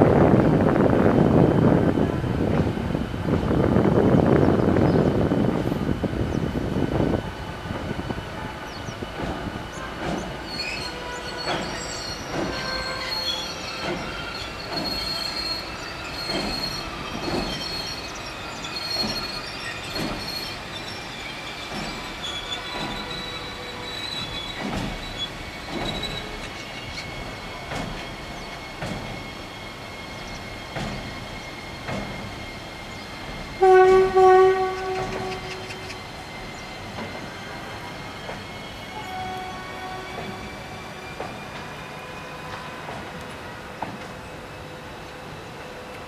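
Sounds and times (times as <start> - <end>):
train wheels clicking over rail joints: 7.2 - 39.1, 39.8 - 46.0
high wheel squeal: 9.6 - 45.9
train horn: 10.6 - 15.8, 22.2 - 24.4, 33.6 - 36.0, 37.0 - 38.2, 38.8 - 43.9.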